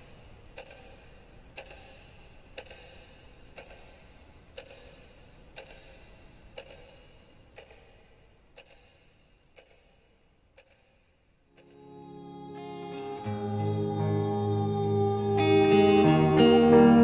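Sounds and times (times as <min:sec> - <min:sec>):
clock ticking: 0:00.0 - 0:12.0
low hiss: 0:00.0 - 0:16.2.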